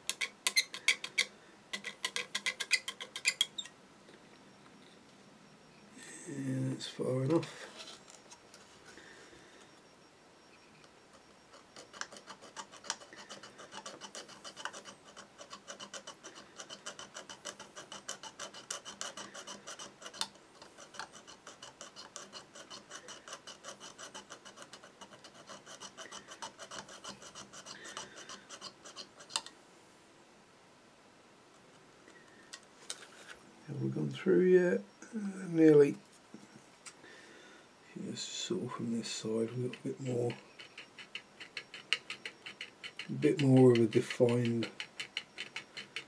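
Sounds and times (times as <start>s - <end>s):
saw rasping through plastic: 0.0s - 3.7s, 11.2s - 29.5s, 39.7s - 46.0s.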